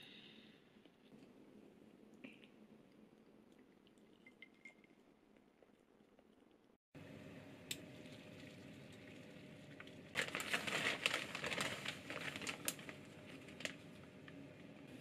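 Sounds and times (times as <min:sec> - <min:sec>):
plastic bag crinkling: 0:10.1 - 0:13.9.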